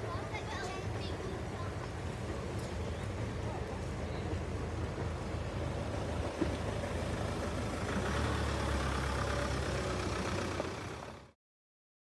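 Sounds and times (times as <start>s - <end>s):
low engine-like rumble with hiss: 0.0s - 11.4s.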